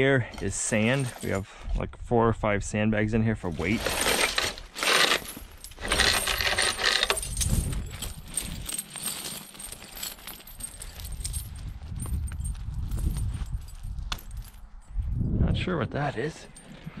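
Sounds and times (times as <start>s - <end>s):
steel chain rattling and clinking: 0.3s - 1.4s, 3.6s - 15.1s, 16.2s - 17.0s.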